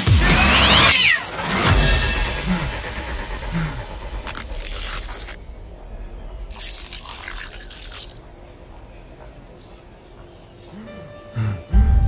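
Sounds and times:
snail shell crunching underfoot: 4.2s - 5.4s, 6.5s - 8.2s.

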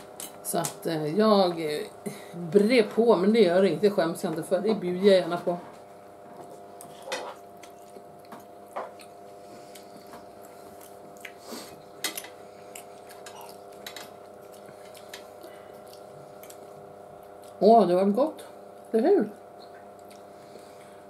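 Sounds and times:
steady low hum: 0.0s - 21.0s
chewing: 6.4s - 17.6s, 19.6s - 20.4s.

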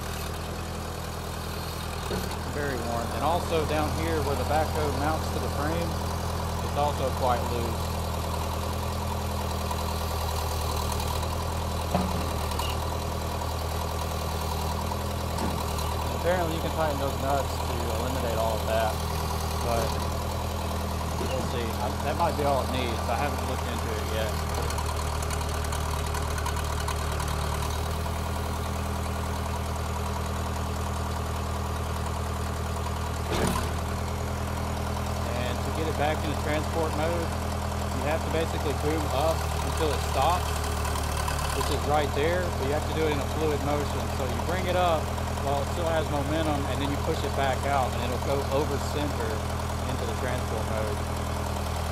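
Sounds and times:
diesel engine idling: 0.0s - 51.9s
short clunk: 11.9s - 12.8s, 33.3s - 33.8s.

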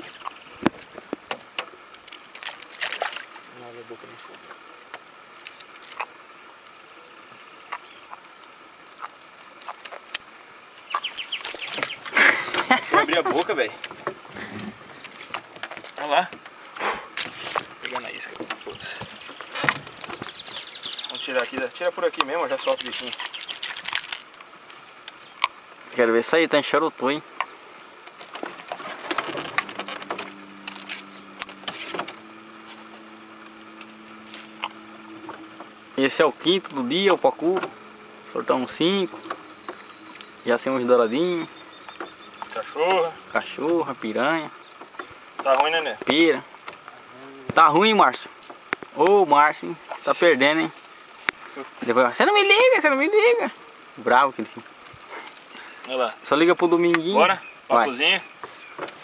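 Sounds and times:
water splashes and ticks: 0.0s - 6.8s, 7.6s - 14.2s, 15.0s - 25.6s
faint steady hiss: 0.0s - 59.0s
steady motor hum: 0.0s - 59.0s.

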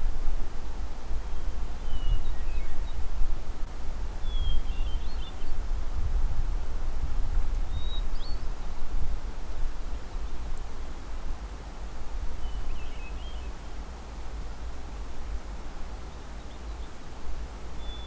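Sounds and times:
wind buffeting microphone: 0.0s - 13.3s
faint bird chirps: 1.3s - 3.1s, 4.2s - 5.6s, 7.7s - 8.9s, 12.3s - 13.8s, 14.9s - 17.1s, 17.7s - 18.0s.

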